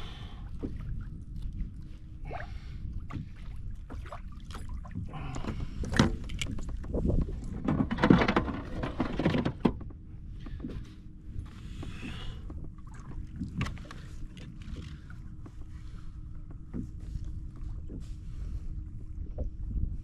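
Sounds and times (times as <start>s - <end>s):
water slapping kayak: 0.0s - 20.0s
wind rumble on microphone: 0.0s - 20.0s
knocks and plastic clatter: 5.9s - 9.9s.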